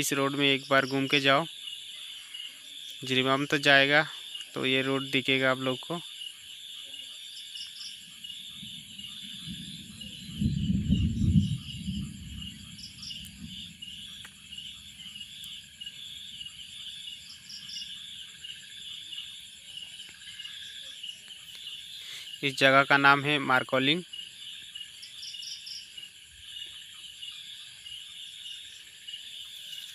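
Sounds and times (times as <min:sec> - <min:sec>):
insects chirring: 0:00.0 - 0:29.9
low rumble: 0:09.3 - 0:14.7.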